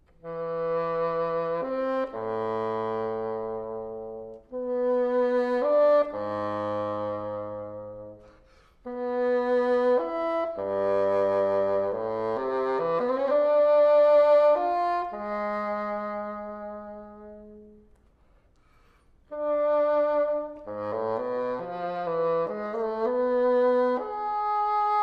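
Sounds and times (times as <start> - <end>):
solo bassoon melody: 0.0 - 18.0, 19.2 - 25.0.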